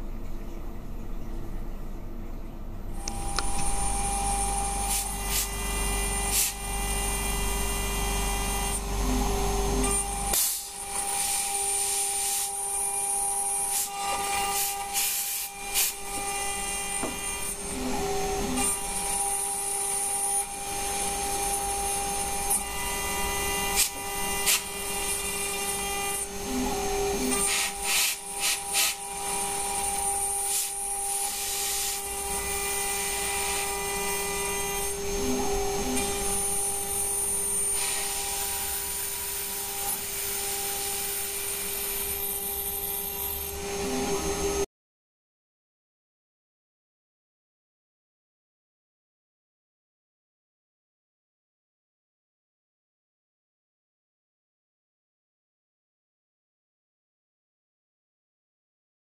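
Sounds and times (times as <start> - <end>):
metal cutting scraping noise: 3.0 - 44.6.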